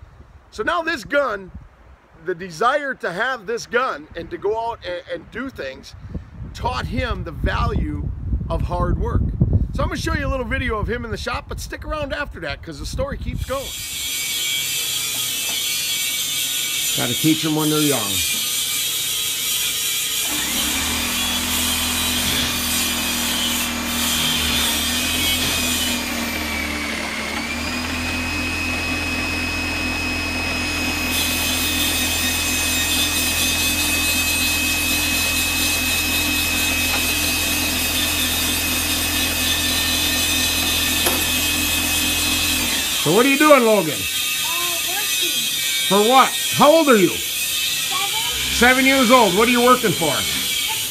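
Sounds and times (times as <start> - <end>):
shop machine motor whining: 13.5 - 44.5, 45.4 - 50.9.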